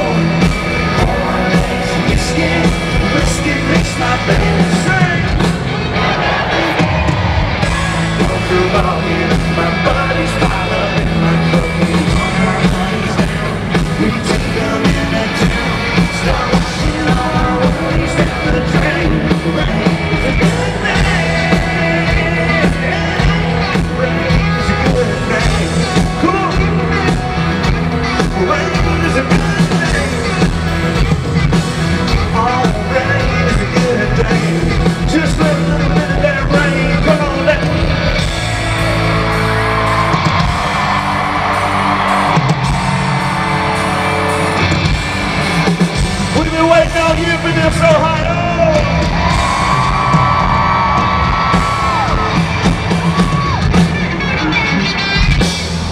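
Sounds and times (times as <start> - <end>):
man singing into microphone: 0.0 - 5.4, 7.9 - 27.4, 28.2 - 30.4, 32.1 - 38.2
crowd yelling: 0.0 - 55.9
live country band playing: 0.0 - 55.9.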